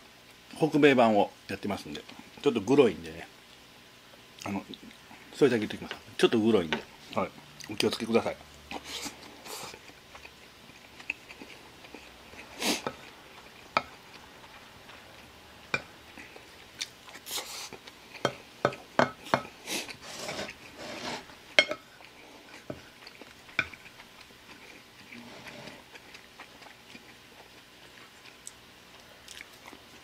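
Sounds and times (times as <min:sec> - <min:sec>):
wooden spoon scraping ceramic plate: 0:20.0 - 0:21.8, 0:25.1 - 0:25.8.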